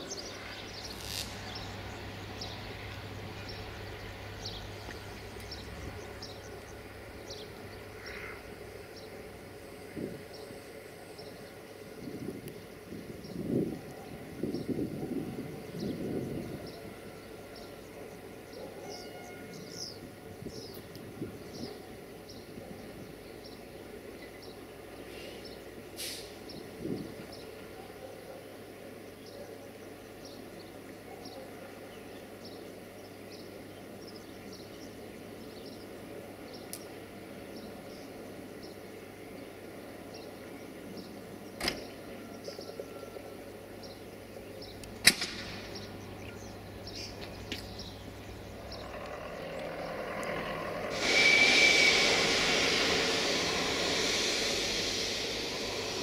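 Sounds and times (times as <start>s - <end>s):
train rushing: 0.0s - 27.8s, 44.0s - 56.0s
sharp metallic clicks: 44.8s - 45.9s
high squeal: 48.8s - 56.0s.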